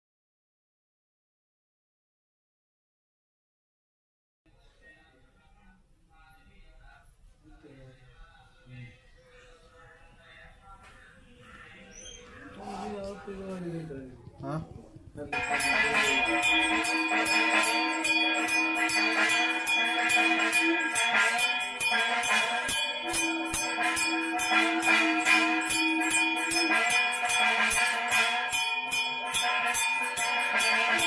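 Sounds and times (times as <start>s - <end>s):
held low tone: 12.6s - 31.0s
hand bells ringing rapidly: 15.3s - 31.0s.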